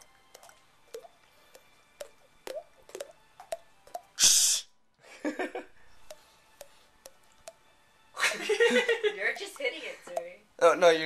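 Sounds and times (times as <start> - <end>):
hollow mouth pops from tapping: 0.3 - 4.2, 6.0 - 7.6, 10.1 - 10.3.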